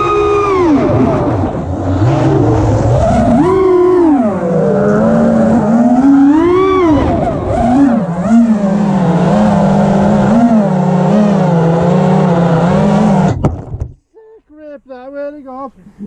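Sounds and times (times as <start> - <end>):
drone motors and propellers whining: 0.0 - 13.6.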